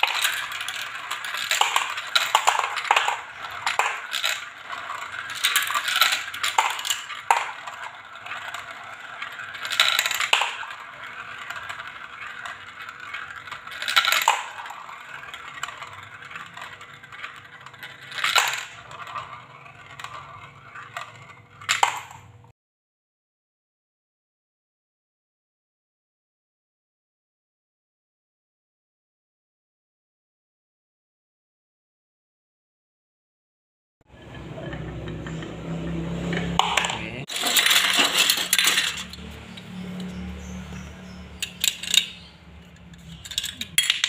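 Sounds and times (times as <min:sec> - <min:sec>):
balls clattering into plastic truck: 0:00.0 - 0:22.5, 0:34.1 - 0:44.0
balls rattling in plastic funnels: 0:00.0 - 0:22.5, 0:34.1 - 0:44.0.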